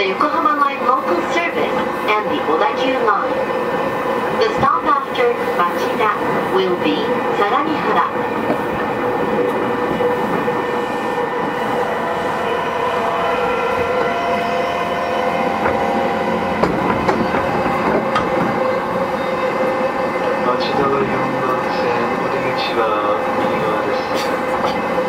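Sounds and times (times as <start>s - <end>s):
traction motors whining: 0.0s - 25.0s
train wheels rumbling on rail: 0.0s - 25.0s
rail-joint clicks: 4.4s - 10.6s, 15.3s - 19.4s, 20.2s - 25.0s.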